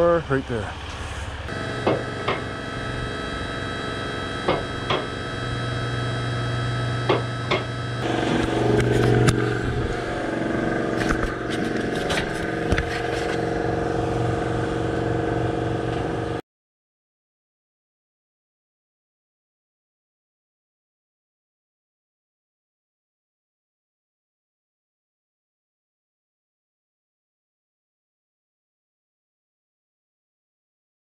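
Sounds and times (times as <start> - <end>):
engine running: 0.0 - 16.4.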